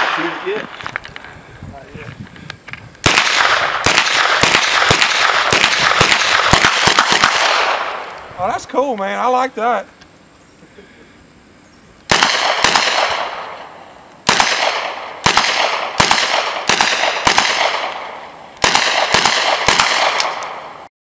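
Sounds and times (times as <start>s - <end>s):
submachine gun shots: 3.0s - 8.0s, 12.1s - 13.6s, 14.2s - 20.6s.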